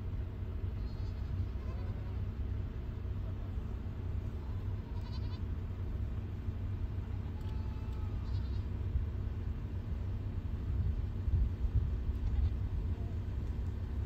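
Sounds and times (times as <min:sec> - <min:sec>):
low rumble: 0:00.0 - 0:14.0
sheep and goats bleating: 0:00.7 - 0:02.4, 0:04.2 - 0:05.6, 0:07.0 - 0:08.8, 0:12.2 - 0:12.7.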